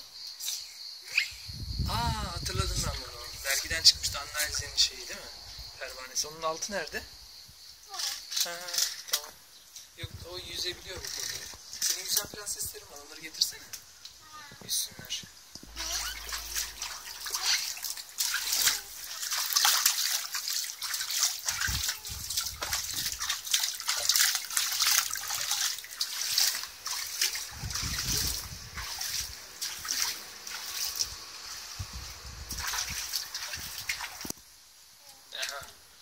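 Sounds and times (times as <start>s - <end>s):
water splashing by hand: 15.7s - 31.3s, 31.9s - 34.3s.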